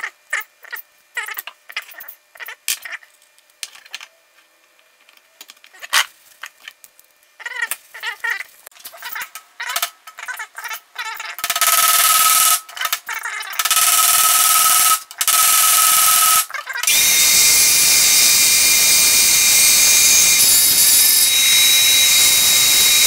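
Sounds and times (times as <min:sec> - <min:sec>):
power tool whining: 0:13.6 - 0:23.0.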